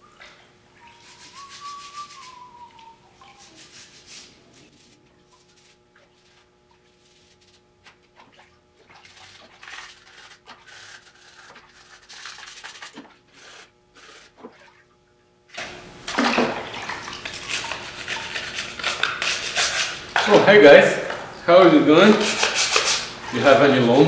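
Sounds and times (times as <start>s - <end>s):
rubbing and scraping in water: 0.9s - 14.9s, 16.5s - 20.3s
light water splashing: 5.3s - 13.2s.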